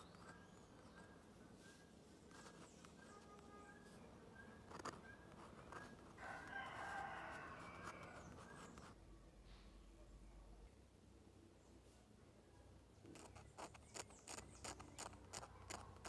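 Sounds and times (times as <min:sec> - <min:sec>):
rooster crowing: 0:06.2 - 0:08.3.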